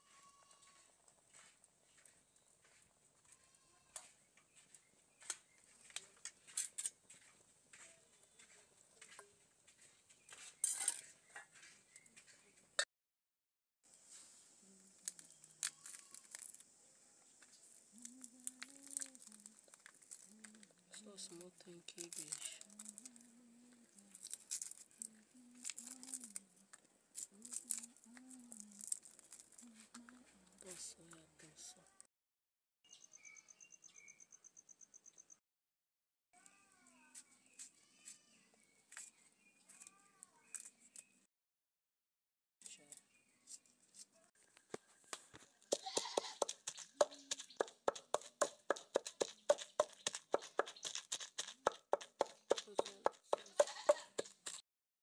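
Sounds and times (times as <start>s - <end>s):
dried fish crackling: 14.2s - 16.8s, 17.6s - 30.6s, 45.2s - 54.6s
pestle pounding in mortar: 45.7s - 54.6s.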